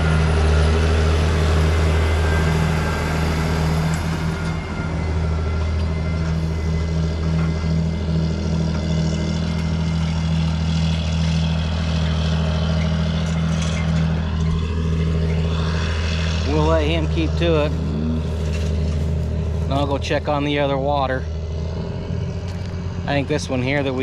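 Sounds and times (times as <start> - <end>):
tractor diesel engine droning: 0.0 - 24.0.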